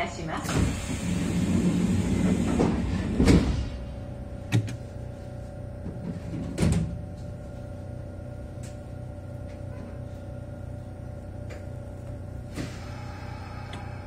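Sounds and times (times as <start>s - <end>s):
standing train hum: 0.0s - 14.0s
train doors sliding shut: 0.4s - 3.8s, 12.5s - 14.0s.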